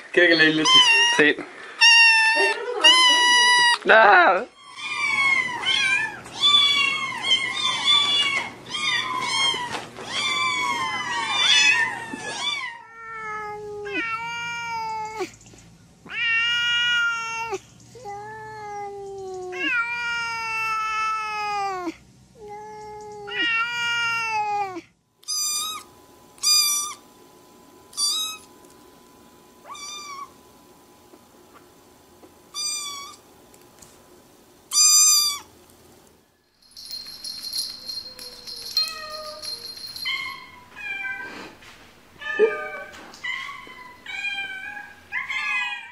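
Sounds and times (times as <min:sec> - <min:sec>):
kittens meowing: 0:00.3 - 0:03.8, 0:04.5 - 0:15.3, 0:28.0 - 0:28.5, 0:29.6 - 0:30.4, 0:32.5 - 0:33.2
kitten high-pitched mews: 0:00.6 - 0:01.2, 0:01.8 - 0:03.8, 0:23.2 - 0:27.0, 0:28.0 - 0:28.4, 0:29.6 - 0:30.3, 0:32.5 - 0:33.2, 0:34.7 - 0:35.5
cat long drawn-out meows: 0:16.1 - 0:17.6, 0:23.2 - 0:24.8.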